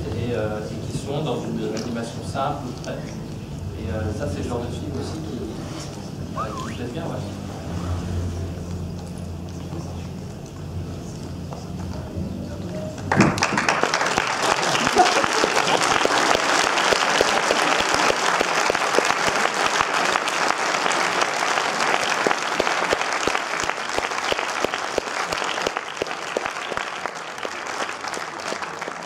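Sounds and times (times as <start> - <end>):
audience applauding: 13.0 - 29.0.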